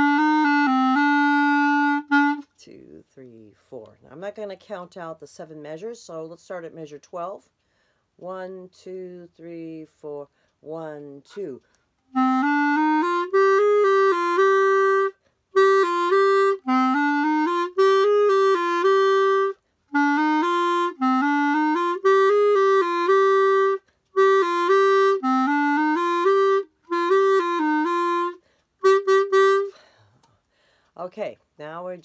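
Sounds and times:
solo clarinet melody: 0.0 - 2.6, 12.1 - 30.0.

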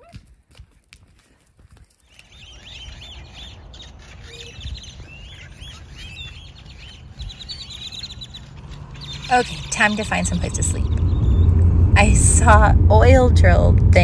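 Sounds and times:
flock of birds chirping: 1.9 - 11.6
low rumble: 7.0 - 14.0.

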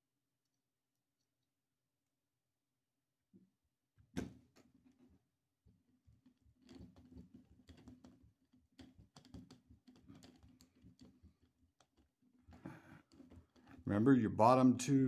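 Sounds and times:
fingers handling plastic radio: 6.6 - 13.8.

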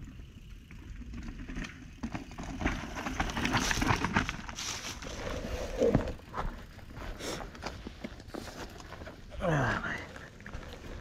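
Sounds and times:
bike tyres on dirt and rock: 0.0 - 11.0
bike knocks and rattles: 1.5 - 4.9.

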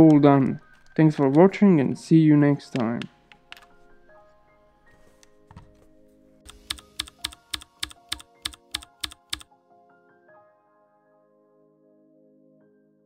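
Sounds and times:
soft background music: 0.0 - 13.0
sharp clicks: 6.5 - 9.4.

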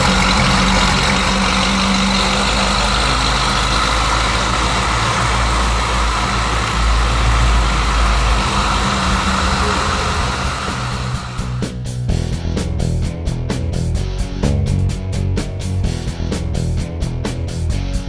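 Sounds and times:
car engine exhaust rumble: 0.0 - 13.0.

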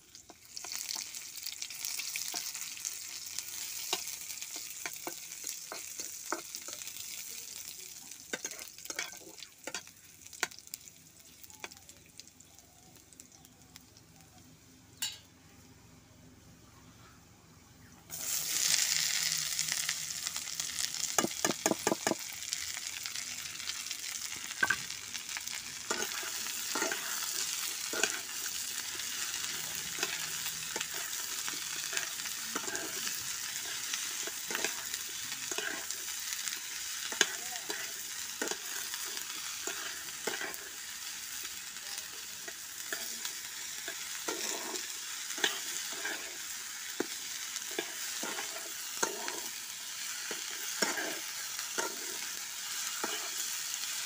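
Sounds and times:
vegetables sizzling in hot oil: 0.0 - 15.3, 18.1 - 54.0
spatula scraping pan: 25.8 - 36.1, 37.0 - 40.8, 42.4 - 52.3.

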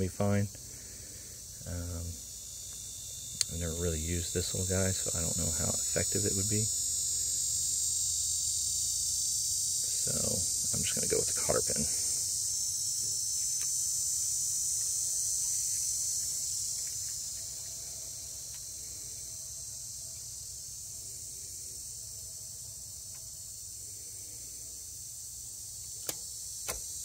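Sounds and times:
high-pitched insect chorus: 0.0 - 27.0
sharp clicks: 26.0 - 26.8.

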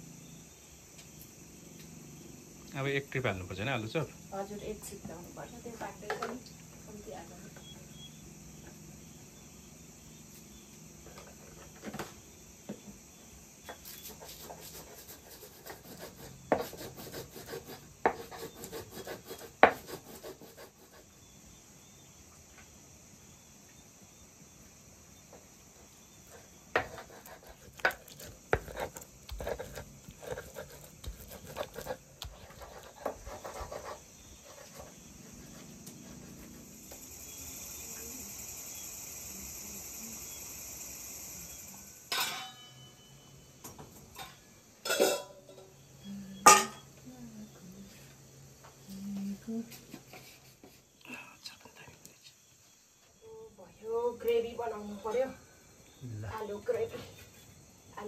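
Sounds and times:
stone grinding and scraping: 26.8 - 36.6.

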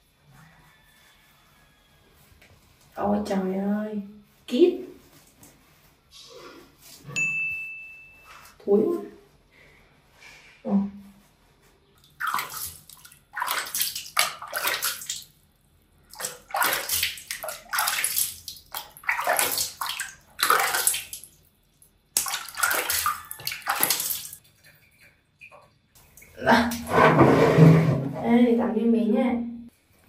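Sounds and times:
water splashing in a plastic basin: 12.0 - 15.4, 16.0 - 26.9.

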